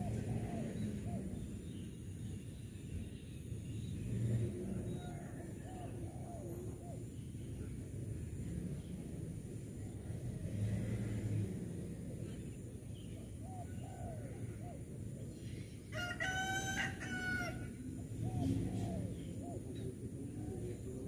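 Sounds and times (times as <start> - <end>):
rooster crowing: 15.9 - 17.8.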